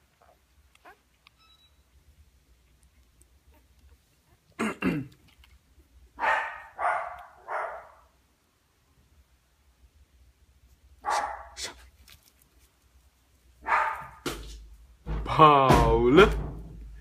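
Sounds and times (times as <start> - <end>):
dog barking: 6.2 - 8.1, 11.0 - 11.8, 13.6 - 14.2.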